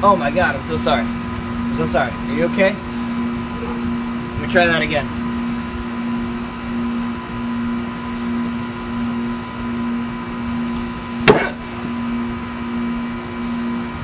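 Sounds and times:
steady hum: 0:00.0 - 0:14.0
machete stabbing cardboard box: 0:11.2 - 0:11.6.

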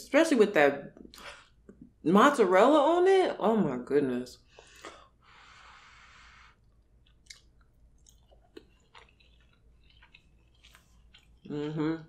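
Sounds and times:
wet chewing: 0:06.6 - 0:11.8.

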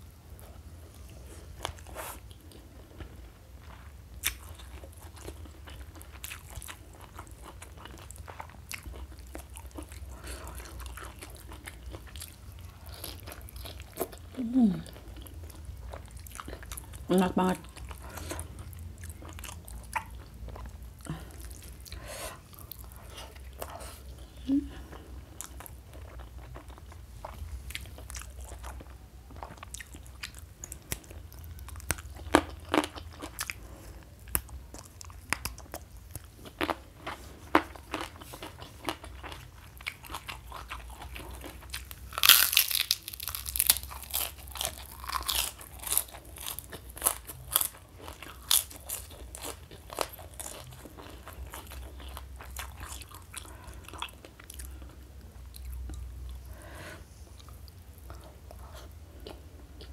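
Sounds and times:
cracker crunching: 0:25.4 - 0:54.9.

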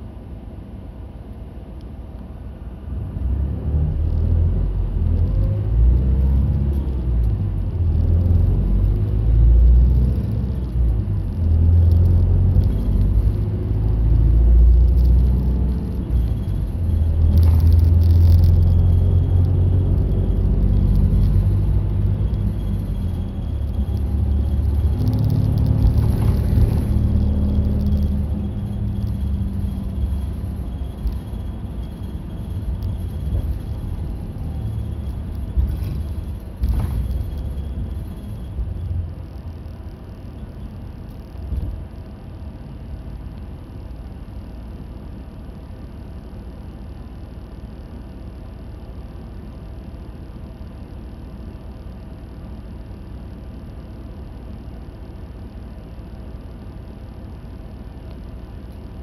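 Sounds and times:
bus engine and road rumble: 0:00.0 - 0:59.0.

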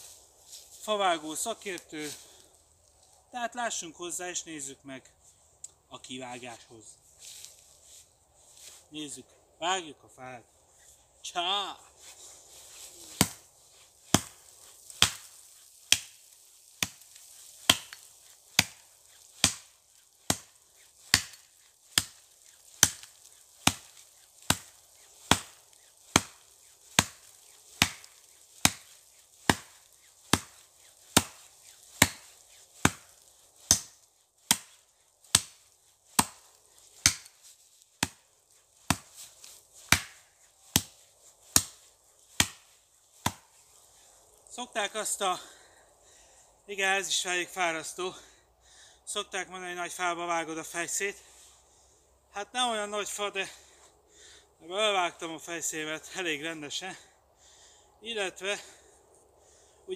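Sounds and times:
axe chopping wet wood: 0:13.1 - 0:13.4, 0:14.1 - 0:38.2, 0:38.9 - 0:43.4.

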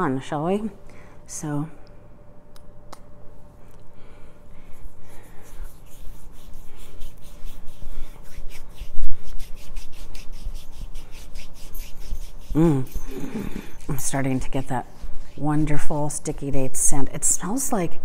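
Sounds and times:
hands rubbing lotion into skin: 0:04.7 - 0:12.6.

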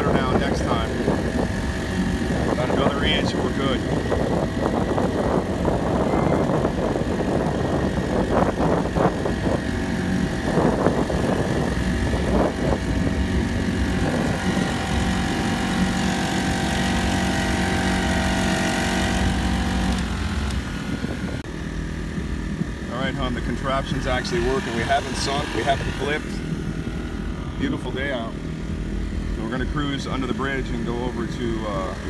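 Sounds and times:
rushing wind gusts: 0:00.0 - 0:22.9
outboard motor running: 0:00.0 - 0:32.0.

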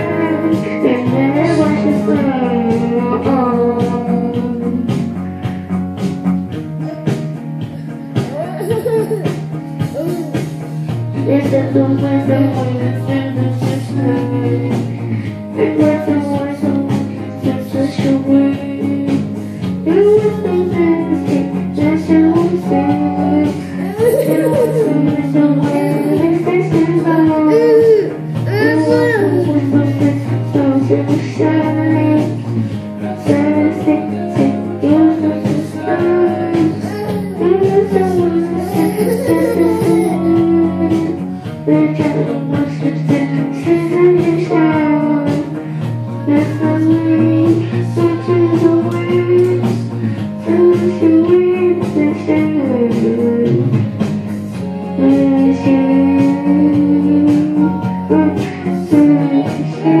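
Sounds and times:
boy singing into microphone: 0:00.0 - 0:05.6, 0:06.6 - 1:00.0
guitar and bass music: 0:00.0 - 1:00.0.

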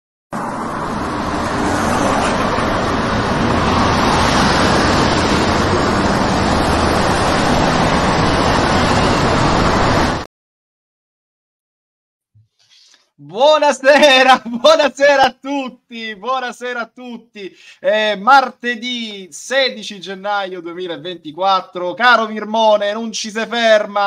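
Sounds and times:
highway traffic roar: 0:00.3 - 0:10.3.

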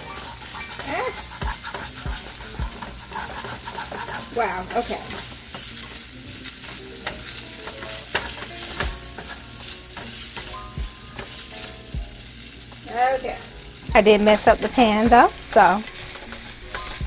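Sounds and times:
chicken sizzling in oil: 0:00.0 - 0:17.0
spatula knocking on pan: 0:00.4 - 0:05.8, 0:06.7 - 0:11.4.

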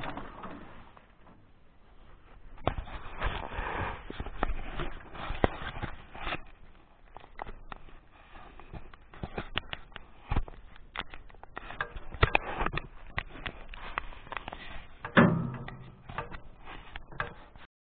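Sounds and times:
irregular clicks and knocks: 0:02.6 - 0:17.7.

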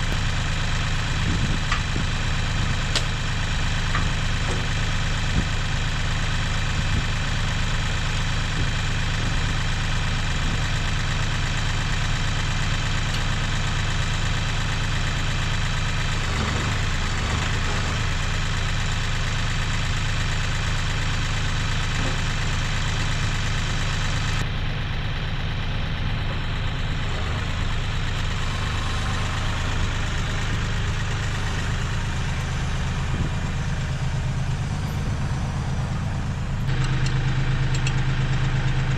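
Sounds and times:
tractor engine idling: 0:00.0 - 0:38.9.

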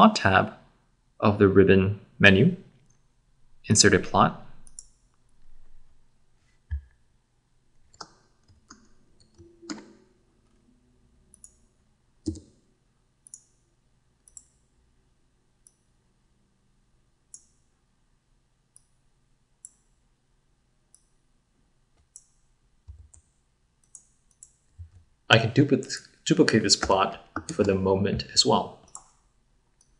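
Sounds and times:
mouse and keyboard clicks: 0:26.8 - 0:27.8.

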